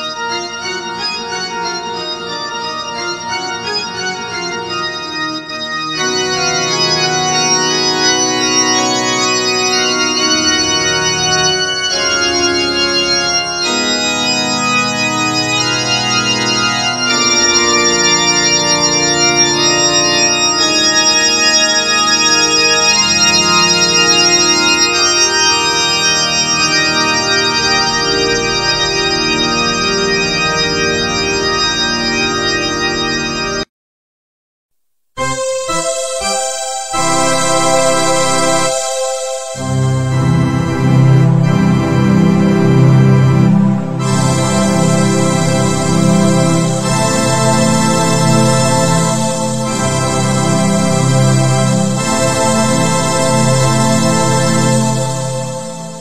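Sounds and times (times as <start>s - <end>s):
organ chords on keyboard: 0.0s - 33.7s, 35.2s - 56.0s.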